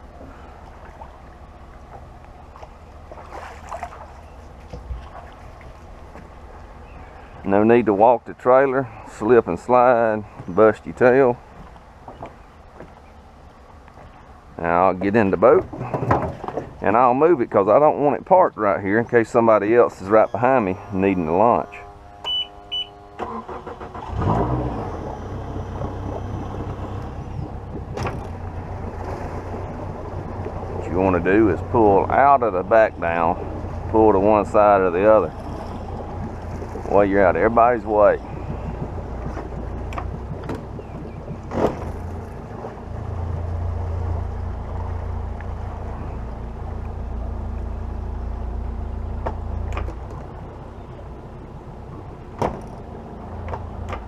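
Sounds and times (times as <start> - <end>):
outboard motor starting and idling: 0.0 - 54.0
short beeps: 21.7 - 23.1.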